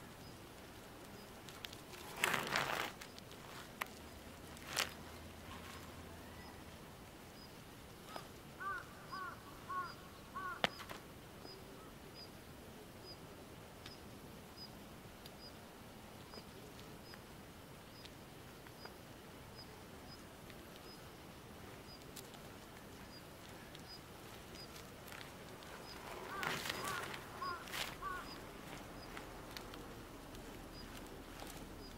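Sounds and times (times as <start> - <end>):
quiet outdoor hiss: 0.0 - 31.9
crow cawing: 8.1 - 10.8, 26.2 - 28.4.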